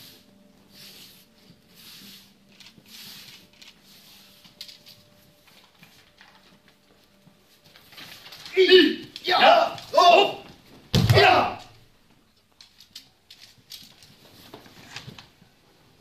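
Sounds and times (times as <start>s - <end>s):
soft swishes and rustles: 0.0s - 8.6s.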